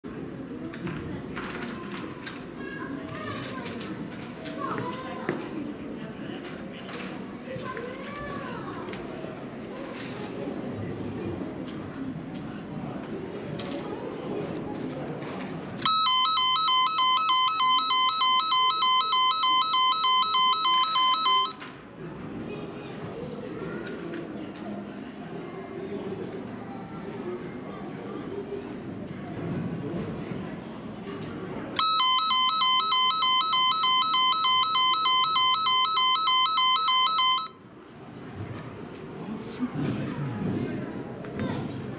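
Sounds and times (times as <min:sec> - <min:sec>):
electronic two-tone alarm warble: 0:15.9 - 0:21.6, 0:31.8 - 0:37.6.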